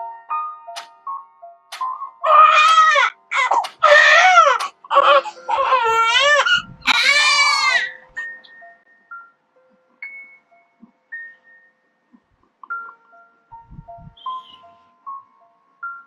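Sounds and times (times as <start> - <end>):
infant crying: 2.2 - 8.0.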